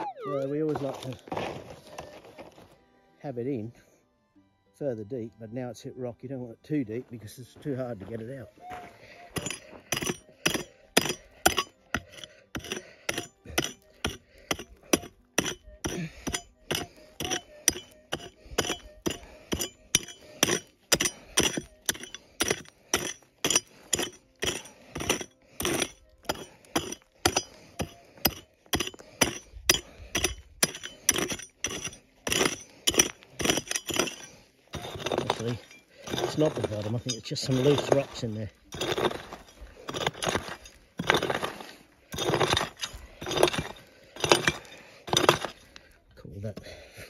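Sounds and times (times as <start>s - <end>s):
digging tool clinking on rock: 9.3s - 46.6s.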